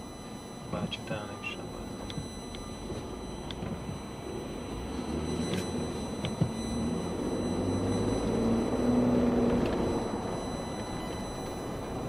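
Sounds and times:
car engine hum in traffic: 0.0 - 12.0.

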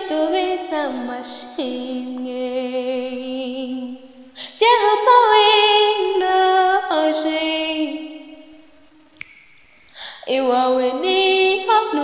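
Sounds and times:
woman singing: 0.0 - 8.6, 10.2 - 12.0.

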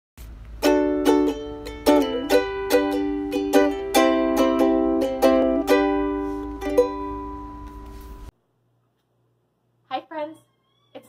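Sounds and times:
strummed string instrument chords: 0.6 - 8.3.

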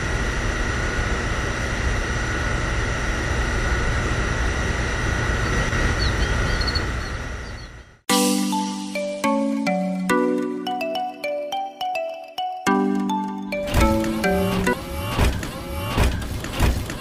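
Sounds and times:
mechanical hum with low rumble: 0.0 - 8.1, 13.6 - 17.0
chiming mallet percussion tune: 8.1 - 13.8.

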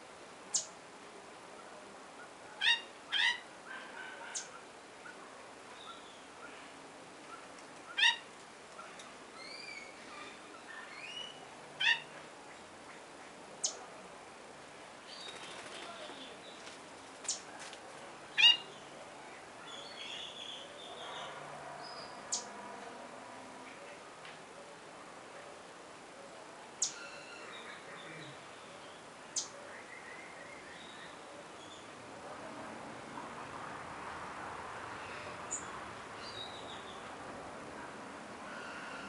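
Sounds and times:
bird chirps: 26.8 - 28.4.

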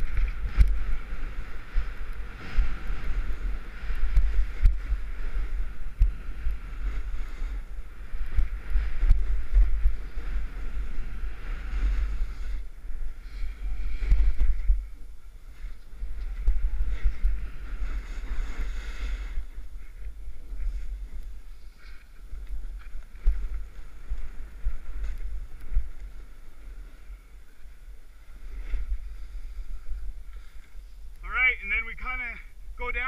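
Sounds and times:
snowboard scraping snow: 0.0 - 31.1
wind buffeting microphone: 0.0 - 31.3.

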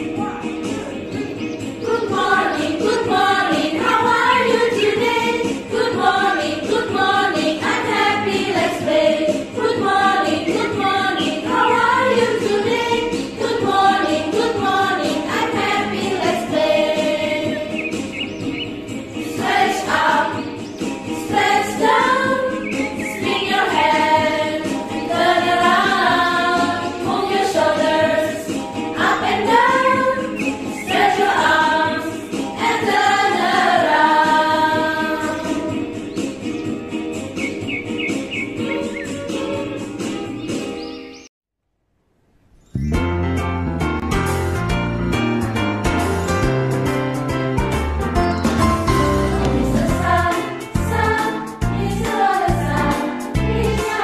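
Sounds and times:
group of voices singing: 0.0 - 36.1, 49.0 - 54.0
backing music: 0.0 - 41.2, 42.8 - 54.0.

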